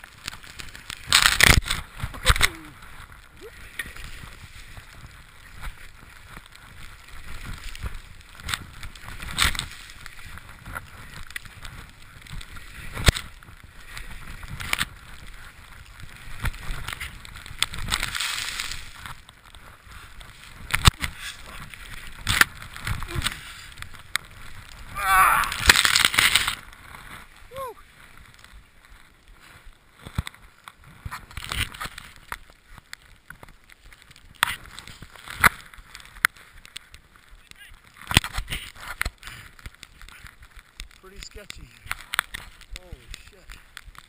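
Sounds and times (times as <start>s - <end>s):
skis hissing through snow: 0.1s - 31.3s.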